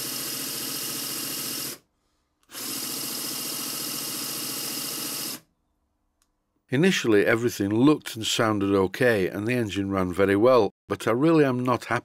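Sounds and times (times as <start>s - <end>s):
electric drill running: 0.0s - 5.5s.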